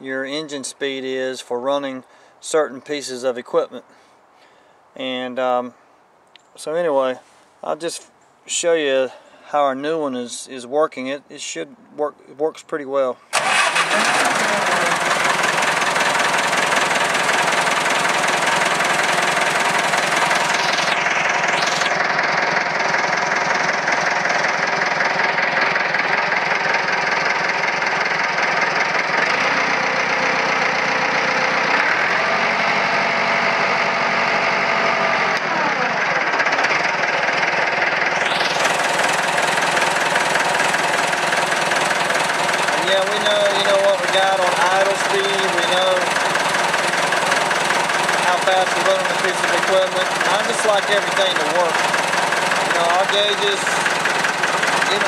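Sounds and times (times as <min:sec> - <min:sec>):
tractor diesel engine idling: 0:13.3 - 0:55.0.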